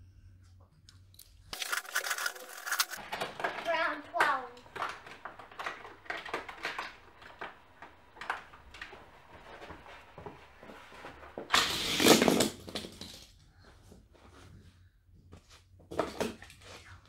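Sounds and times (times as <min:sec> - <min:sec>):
toy cars clicking on plastic track: 0:01.5 - 0:13.2.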